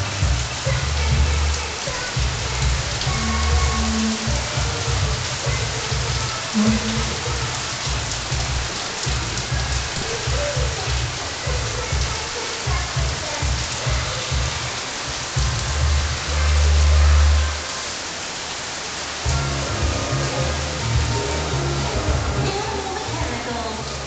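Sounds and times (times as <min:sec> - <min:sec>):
heavy rain on a metal roof: 0:00.0 - 0:24.0
low rumbles: 0:02.2 - 0:12.1, 0:19.3 - 0:24.0.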